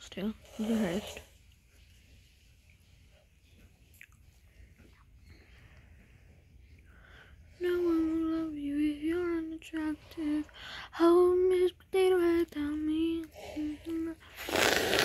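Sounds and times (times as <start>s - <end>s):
girl singing: 7.5s - 14.4s.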